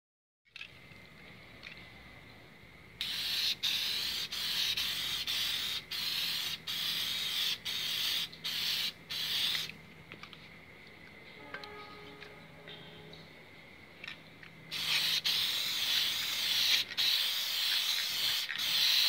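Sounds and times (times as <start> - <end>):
spray paint can hissing: 3.0 - 9.8, 14.7 - 19.0.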